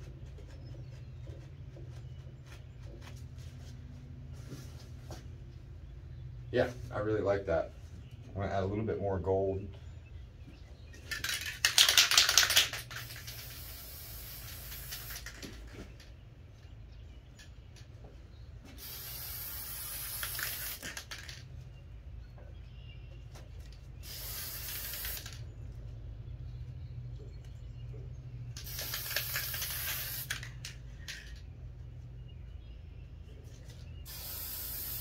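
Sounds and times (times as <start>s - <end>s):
spray paint can hissing: 11.2s - 15.6s, 18.8s - 21.4s, 24.0s - 25.4s, 28.6s - 30.8s, 34.1s - 35.0s.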